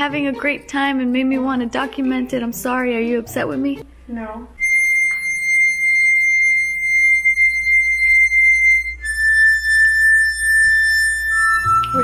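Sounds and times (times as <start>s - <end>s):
harmonica high notes: 4.6s - 12.0s.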